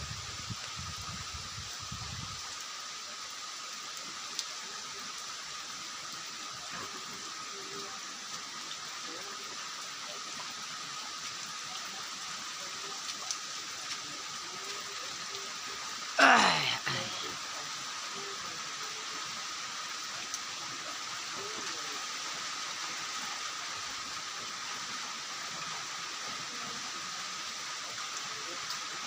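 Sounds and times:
wind rumble on microphone: 0.0s - 2.4s
rain falling on trees: 0.0s - 29.0s.

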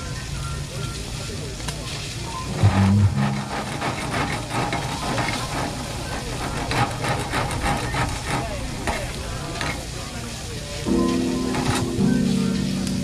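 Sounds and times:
meat sizzling on a grill: 0.0s - 2.5s
tongs and spatula scraping mesh: 2.5s - 9.8s.

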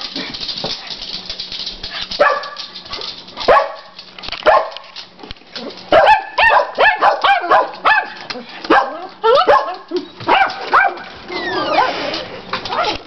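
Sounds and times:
dogs barking: 2.2s - 2.8s, 3.4s - 4.8s, 5.9s - 11.2s.

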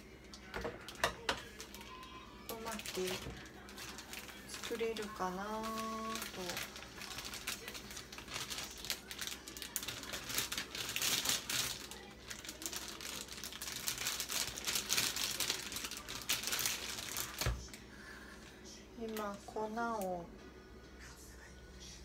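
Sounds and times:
plastic bag crinkling: 0.2s - 17.8s.

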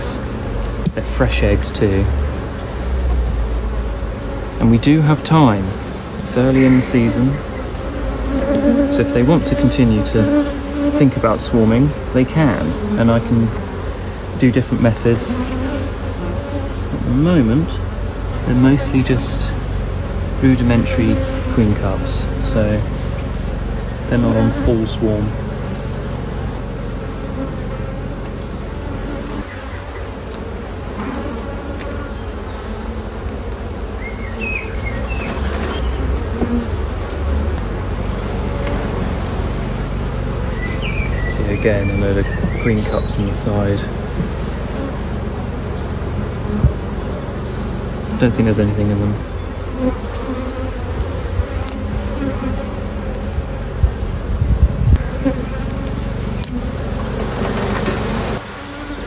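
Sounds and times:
honeybees buzzing: 0.0s - 59.0s
single bees droning past: 0.0s - 59.0s
dull low bumps: 34.6s - 49.8s, 50.8s - 58.4s.

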